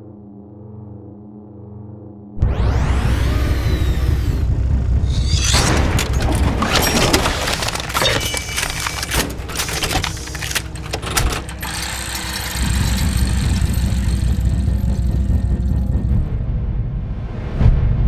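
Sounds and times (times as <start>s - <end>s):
deep engine-like rumble: 2.4s - 11.6s, 12.5s - 17.9s
low hum: 2.4s - 18.0s
metallic clicks and clanks of gears: 5.1s - 16.0s.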